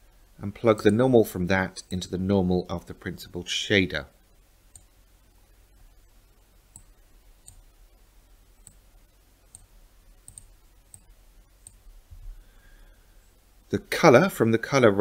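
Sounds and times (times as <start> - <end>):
low steady hum: 0.0 - 15.0
computer mouse clicks: 4.7 - 4.9, 6.7 - 7.7, 8.6 - 8.8, 9.5 - 11.8.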